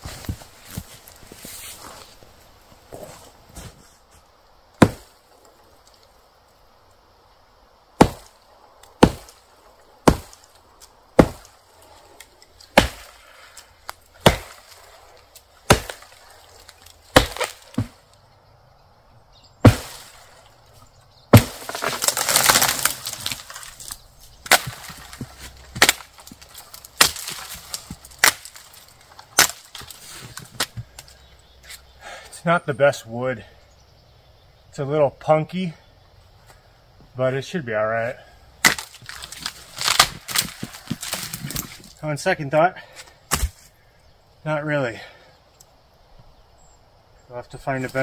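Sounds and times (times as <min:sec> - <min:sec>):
axe chopping wood: 0:04.8 - 0:05.2, 0:08.0 - 0:08.4, 0:09.0 - 0:09.4, 0:10.0 - 0:10.6, 0:11.2 - 0:11.6, 0:12.7 - 0:13.2, 0:13.8 - 0:18.0, 0:19.6 - 0:20.2, 0:21.3 - 0:23.6, 0:24.4 - 0:30.0, 0:38.6 - 0:41.9, 0:43.0 - 0:43.7
wood splintering crash: 0:11.2 - 0:11.6, 0:12.6 - 0:13.2, 0:14.2 - 0:18.0, 0:19.6 - 0:20.4, 0:21.3 - 0:30.8, 0:38.6 - 0:42.0.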